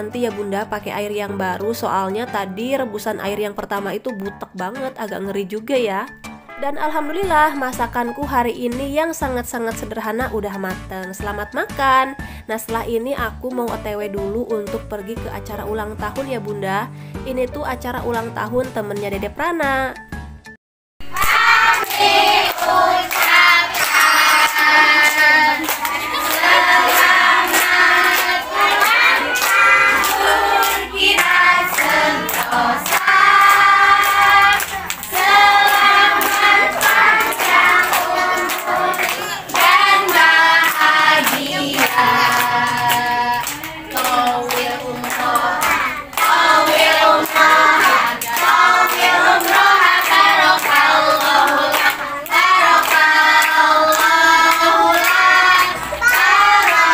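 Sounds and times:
children and women singing: 6.6s - 8.0s, 21.0s - 56.9s
hands clapping: 21.2s - 56.9s.

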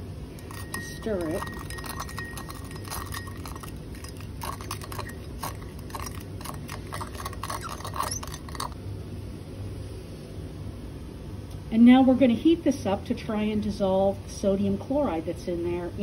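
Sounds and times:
metal spatula scraping glass beaker: 0.4s - 8.8s.

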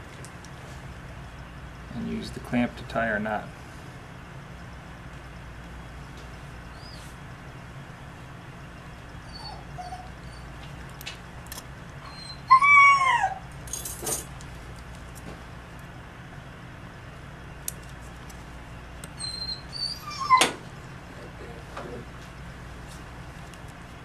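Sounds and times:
steady low hum: 0.0s - 24.0s
dog whimpering: 9.2s - 10.6s, 12.0s - 13.5s, 19.2s - 20.6s.

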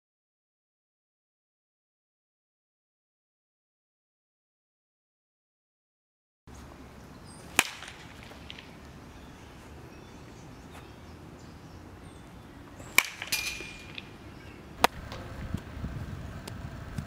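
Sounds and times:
outdoor background noise: 6.5s - 17.0s
baseball bat hitting ball: 7.5s - 8.9s, 12.8s - 15.7s.

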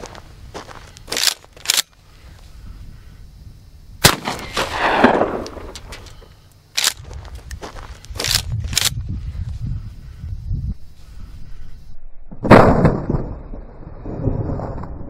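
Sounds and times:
shotgun pump action clacks: 1.2s - 1.9s, 6.8s - 7.0s, 8.2s - 9.0s
shotgun blast: 4.0s - 6.0s, 12.4s - 13.3s.

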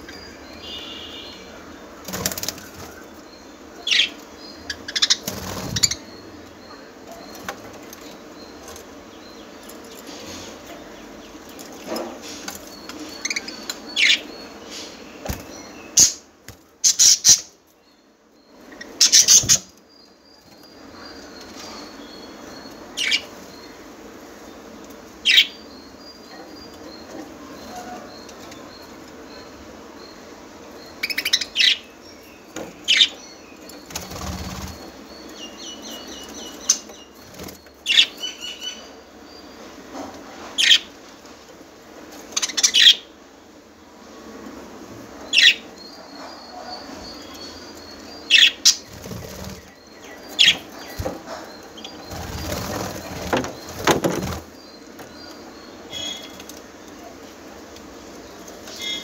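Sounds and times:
wing flutters: 33.8s - 35.0s, 48.7s - 49.8s, 52.0s - 54.6s.

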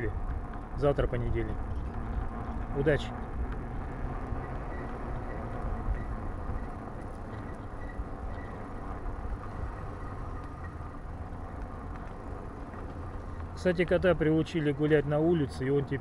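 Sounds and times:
wind rumble on microphone: 0.0s - 15.1s
bike tyres rolling on paving: 0.0s - 16.0s.

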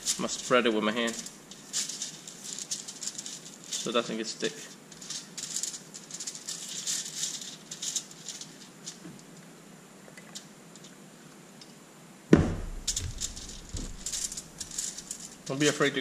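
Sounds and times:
aluminium foil crinkling: 0.0s - 9.5s, 12.6s - 16.0s
heavy thump: 12.3s - 14.8s.

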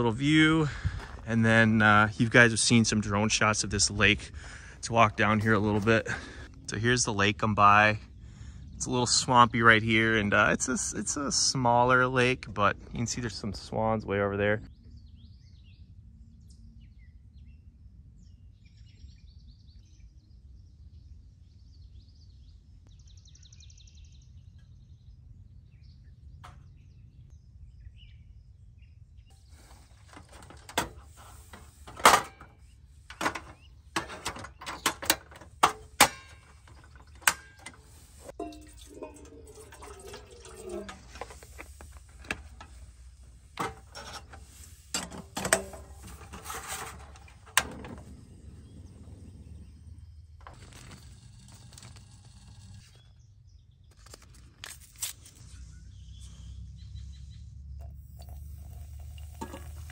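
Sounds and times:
faint bird chirps and trills: 14.6s - 31.3s, 47.2s - 54.6s, 55.3s - 59.0s
objects handled and set down: 29.4s - 48.2s, 58.2s - 59.9s
low steady rumble: 35.4s - 53.0s.

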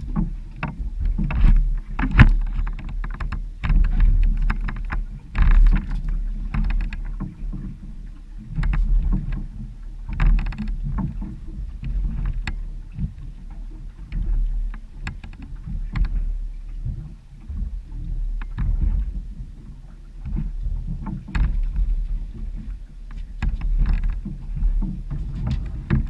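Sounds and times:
water slapping against boat: 0.0s - 26.0s
wind buffeting: 0.0s - 26.0s.

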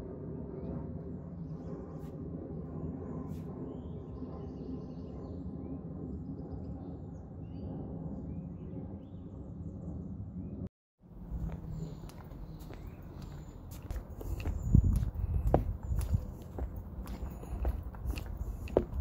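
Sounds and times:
small birds chirping: 11.2s - 19.0s.

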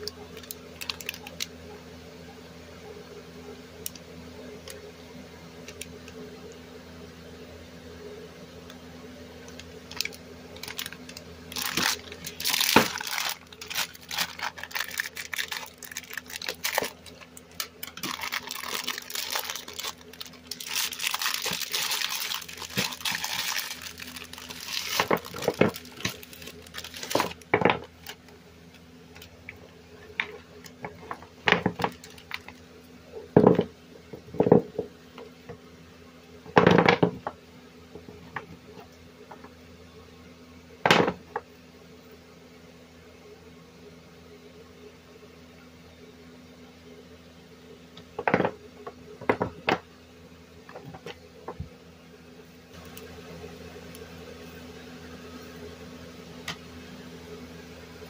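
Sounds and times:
plastic wrapping crinkling: 0.0s - 1.6s, 9.4s - 33.7s.

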